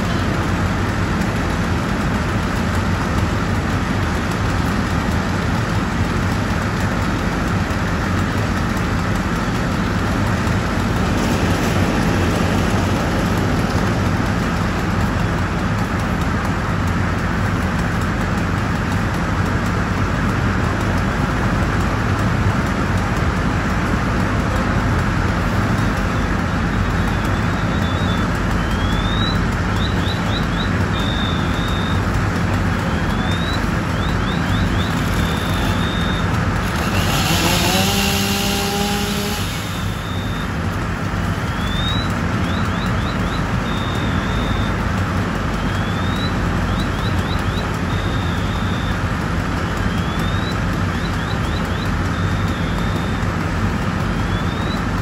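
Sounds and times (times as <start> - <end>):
diesel engine and pump running: 0.0 - 55.0
high electronic chirps and beeps: 26.7 - 32.1, 32.9 - 36.3, 41.4 - 44.8.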